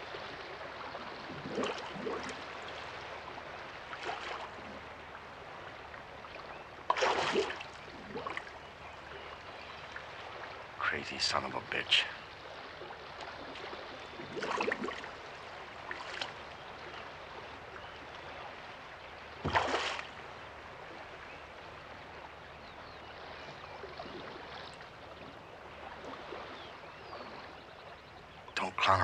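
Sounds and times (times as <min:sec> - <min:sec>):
river water running: 0:00.0 - 0:29.0
water splashes: 0:00.0 - 0:29.0.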